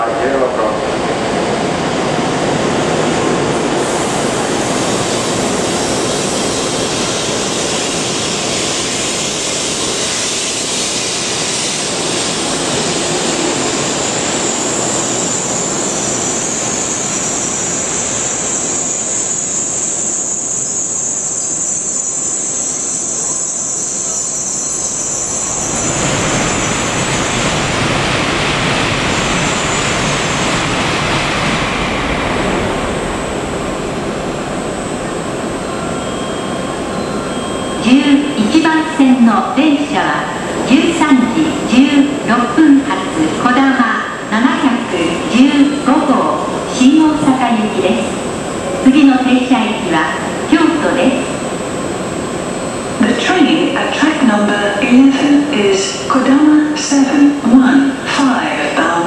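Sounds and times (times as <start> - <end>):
train rumbling past: 0.0 - 59.0
high-pitched brake squeal: 14.4 - 27.4, 35.6 - 38.3
loud wide rushing noise: 25.6 - 35.6.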